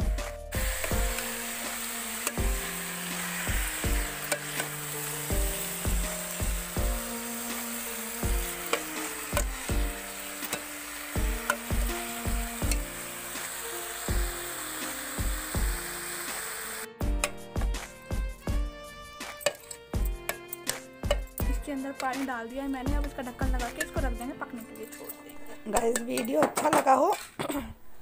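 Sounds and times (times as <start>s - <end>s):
background music with beat: 0.0s - 7.6s, 8.2s - 10.1s, 11.2s - 13.0s, 14.1s - 24.6s
vegetables sizzling in a pot: 0.5s - 17.4s, 19.2s - 26.0s
steel ladle clinking: 19.4s - 21.2s.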